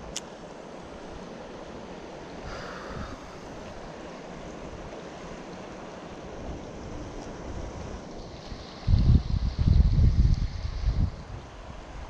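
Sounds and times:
creek water flowing: 0.0s - 12.0s
wind buffeting microphone: 6.2s - 12.0s.

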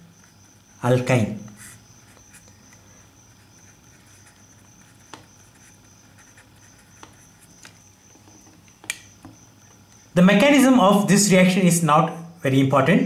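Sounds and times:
marker scratching on paper: 0.1s - 8.6s.

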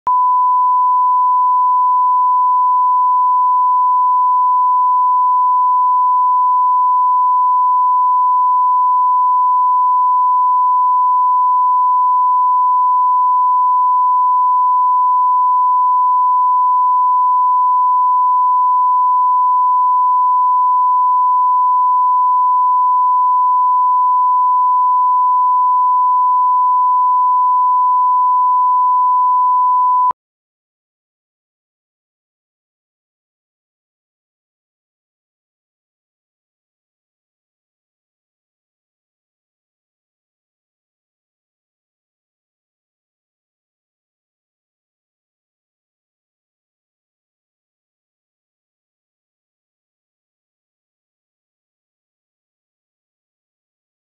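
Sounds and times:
steady sine test tone: 0.1s - 30.2s.

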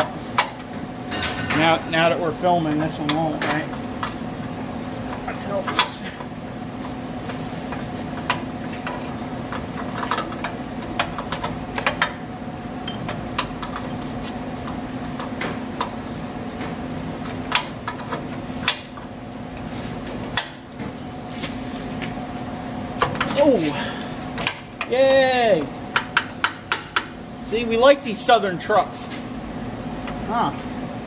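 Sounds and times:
steady hum: 0.0s - 31.0s.

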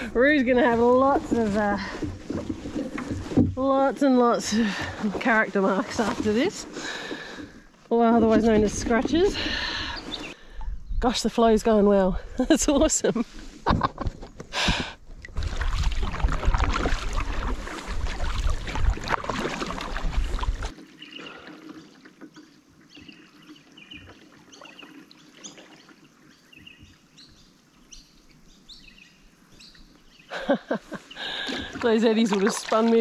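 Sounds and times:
canoe paddle in water: 0.0s - 33.0s
birds chirping: 4.2s - 11.8s, 20.9s - 33.0s
loud rushing water rumble: 15.2s - 20.7s.

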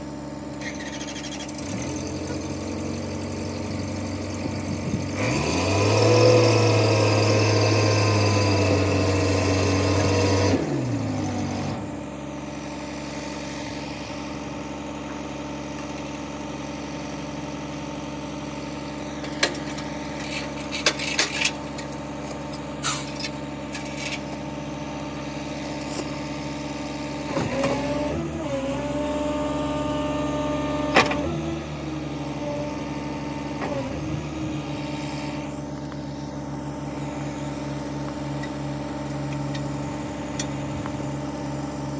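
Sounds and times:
diesel engine idling: 10.6s - 41.9s.

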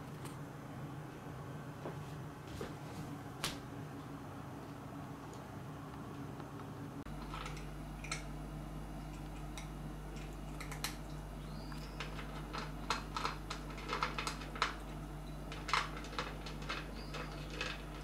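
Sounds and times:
faint low hum: 0.0s - 18.0s
cat crunching dry kibble: 12.0s - 18.0s.

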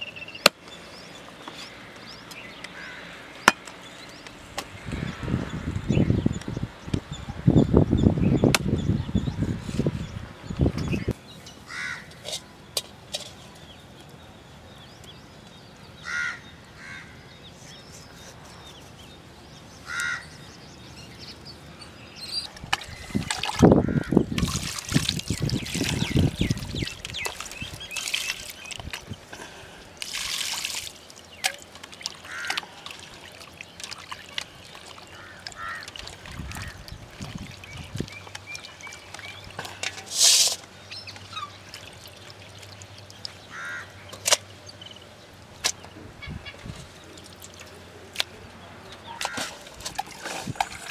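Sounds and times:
crows cawing: 2.8s - 3.2s, 11.7s - 12.2s, 16.0s - 17.2s, 19.8s - 20.3s, 23.8s - 24.2s, 32.2s - 32.8s, 35.1s - 35.9s, 43.5s - 44.0s
water pouring and splashing: 22.6s - 43.5s, 46.6s - 47.8s, 49.2s - 50.9s.

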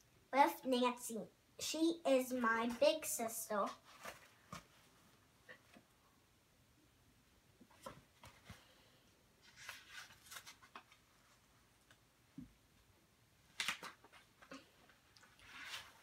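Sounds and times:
book and bedding rustling: 2.6s - 5.8s, 14.0s - 16.0s.

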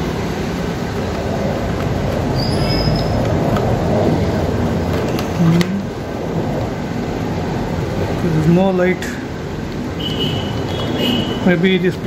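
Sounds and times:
mechanical background noise: 0.0s - 12.0s.

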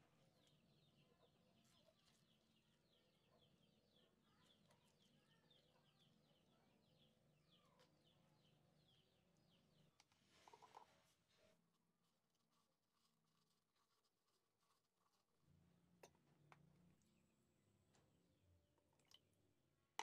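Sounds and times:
faint rapid bird chirping: 0.0s - 11.6s.

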